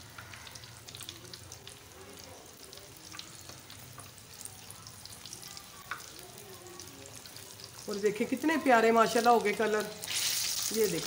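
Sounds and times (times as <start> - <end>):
deep-frying sizzle with pops: 0.0 - 11.0.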